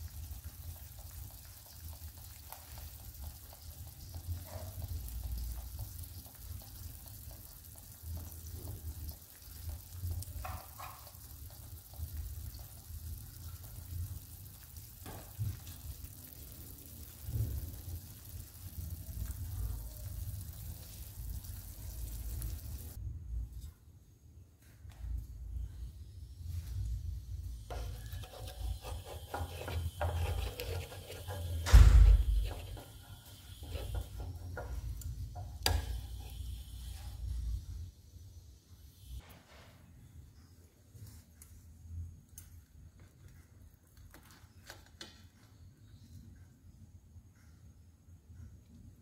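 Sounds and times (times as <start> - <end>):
egg sizzling in oil: 0.0 - 23.0, 26.2 - 39.3
spatula scraping frying pan: 27.7 - 34.9
heavy thump: 31.6 - 32.5.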